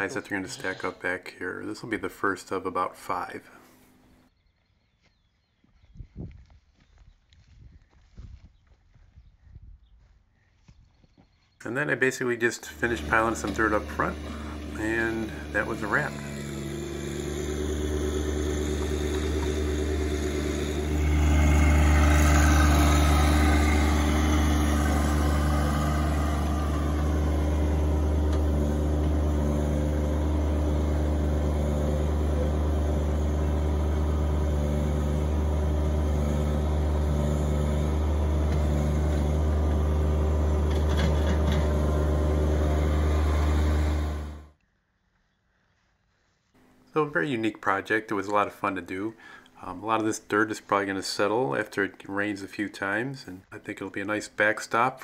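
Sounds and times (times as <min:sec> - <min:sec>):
tractor diesel engine running: 0:00.0 - 0:00.9, 0:11.7 - 0:44.6.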